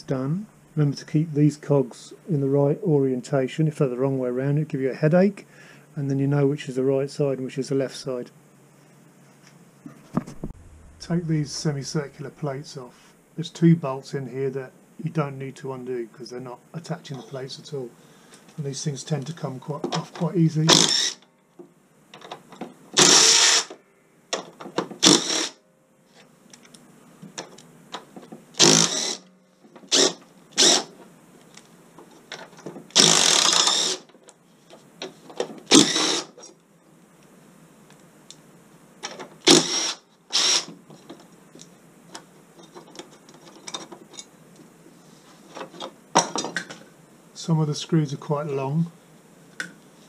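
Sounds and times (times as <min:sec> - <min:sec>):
cordless drill spinning screws: 0:20.7 - 0:21.2, 0:23.0 - 0:23.8, 0:25.0 - 0:25.6, 0:28.6 - 0:29.3, 0:29.9 - 0:30.9, 0:32.9 - 0:34.1, 0:35.7 - 0:36.4, 0:39.5 - 0:40.7.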